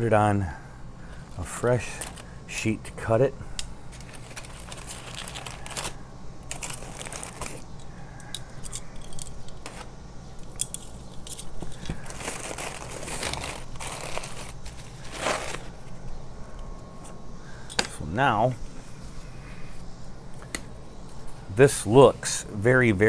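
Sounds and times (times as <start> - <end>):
aluminium foil crinkling: 1.3 - 2.3, 3.9 - 7.6, 10.6 - 15.8.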